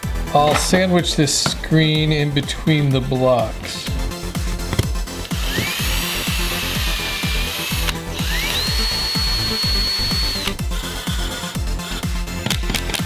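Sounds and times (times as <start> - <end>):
background music with beat: 0.0 - 13.0
cordless driver motor whining: 4.8 - 13.0.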